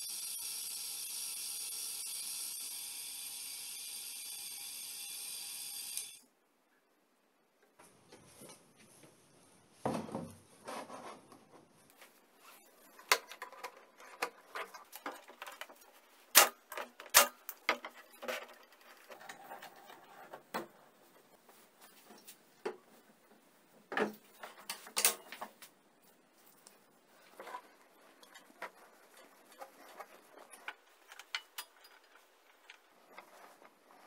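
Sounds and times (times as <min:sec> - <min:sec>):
parts clicking and knocking: 0:12.7 - 0:21.0, 0:23.9 - 0:25.7, 0:27.3 - 0:34.0.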